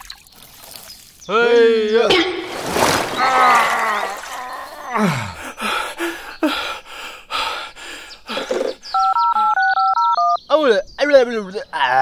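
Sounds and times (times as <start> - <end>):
falling cartoon vocal sound: 3.0 - 5.4.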